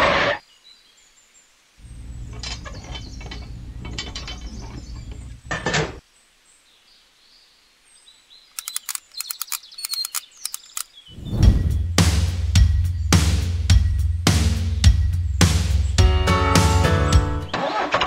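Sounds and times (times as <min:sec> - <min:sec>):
low steady hum: 0:01.8 - 0:06.0
handling clicks: 0:08.6 - 0:10.9
screwdriver clicking: 0:08.6 - 0:10.9.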